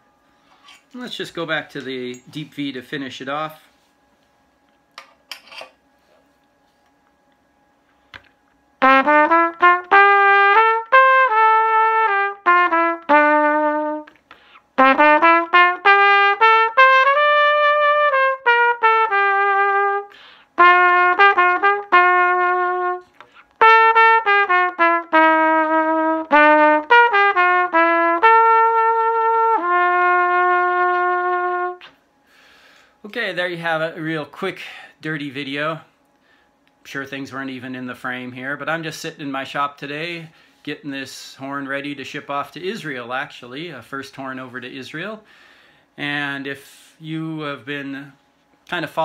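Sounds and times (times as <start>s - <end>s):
trumpet playing a melody: 8.8s - 32.0s.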